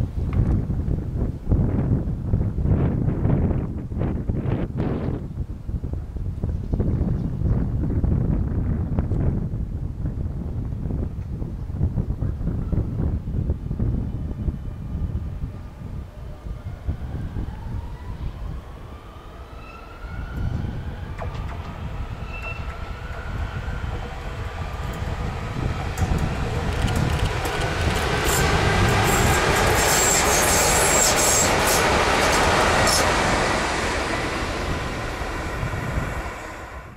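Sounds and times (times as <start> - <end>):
electric train passing: 12.4 - 36.9
train wheel clicks: 21.2 - 21.8, 25.8 - 33.1.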